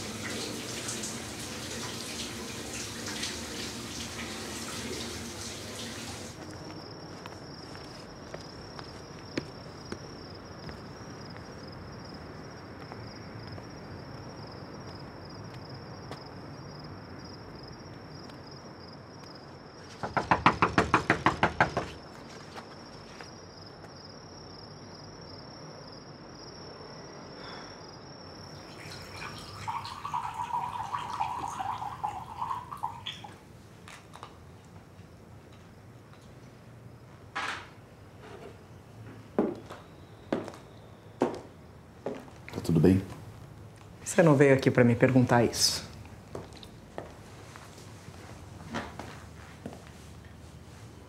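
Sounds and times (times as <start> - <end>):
knocking on wooden door: 20.0 - 22.0.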